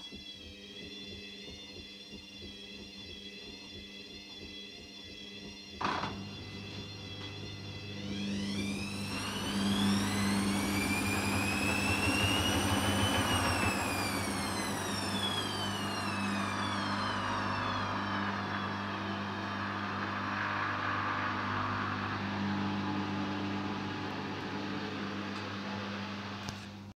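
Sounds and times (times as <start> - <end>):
washing machine drum motor whining: 0.0 - 27.0
steady low hum: 6.2 - 26.9.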